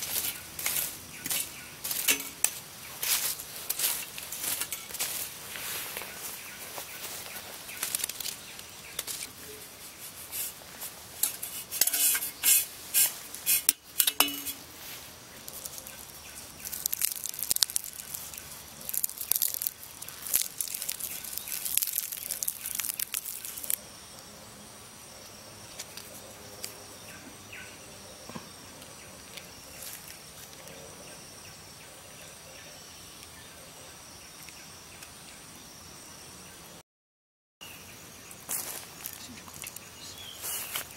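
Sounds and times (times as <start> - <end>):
sharp crackles and clinks: 0.0 - 5.3, 7.8 - 9.6, 11.2 - 14.7, 15.4 - 23.8
forest background: 0.0 - 36.8, 37.6 - 40.9
high insect drone: 0.0 - 36.8, 37.7 - 40.9.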